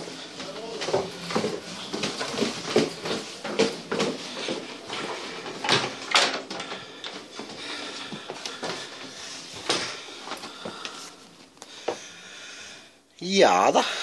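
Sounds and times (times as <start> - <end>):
footsteps on wooden stairs: 0.0 - 12.1.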